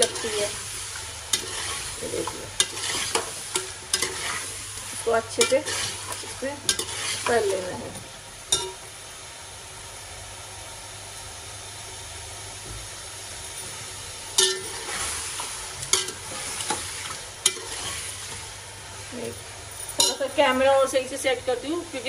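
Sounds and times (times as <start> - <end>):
chicken frying in hot oil: 0.0 - 22.0
metal spoon scraping a pot: 1.3 - 4.5, 5.4 - 7.5.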